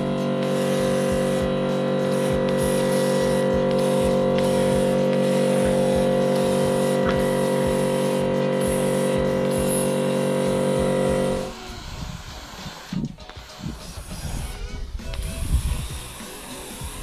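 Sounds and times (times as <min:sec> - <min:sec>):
machine hum: 0:00.0 - 0:13.5
paint spray gun hissing: 0:00.0 - 0:17.0.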